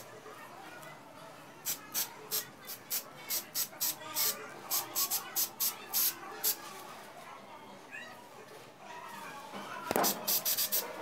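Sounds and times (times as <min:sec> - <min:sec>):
spray can hissing bursts: 0:01.6 - 0:06.6, 0:10.0 - 0:10.8.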